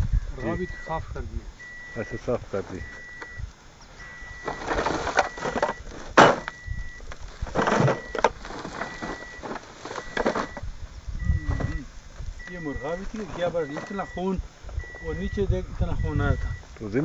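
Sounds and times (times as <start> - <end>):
steady high beep: 0.4 - 3.4, 4.0 - 4.6, 6.4 - 7.0, 11.2 - 16.6
plastic sack rustling: 4.2 - 10.7.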